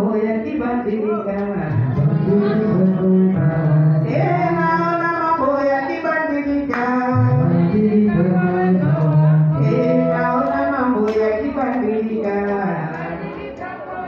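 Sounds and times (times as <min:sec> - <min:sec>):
music: 0:00.0 - 0:14.0
person singing long held notes: 0:06.9 - 0:11.6.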